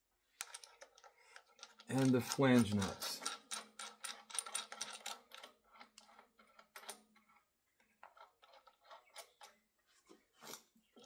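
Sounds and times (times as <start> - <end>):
metal nuts and washers clicking: 0.4 - 7.4.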